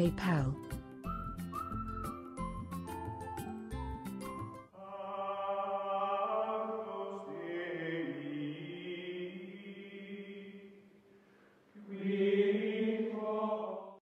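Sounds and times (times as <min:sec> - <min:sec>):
slow chanted vocals: 0:04.8 - 0:11.1, 0:11.7 - 0:14.0.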